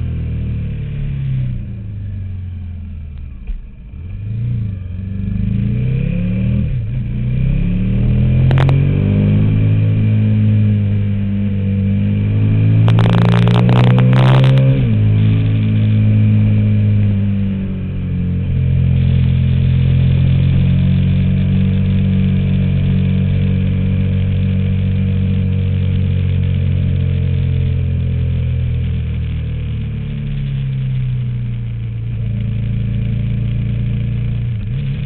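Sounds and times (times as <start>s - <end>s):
motorcycle engine running: 0.0s - 35.0s
engine crackles: 8.0s - 11.2s, 12.2s - 35.0s.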